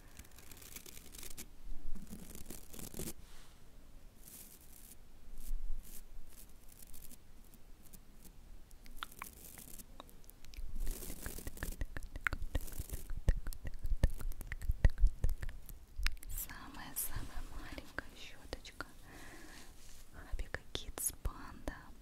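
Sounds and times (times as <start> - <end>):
crunchy mouth smacks: 8.7 - 16.4
wet mouth clicks: 8.7 - 16.4.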